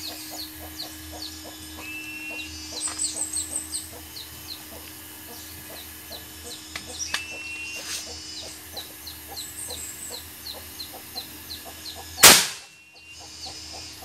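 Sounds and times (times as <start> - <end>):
air rifle shot crack: 12.2 - 12.7.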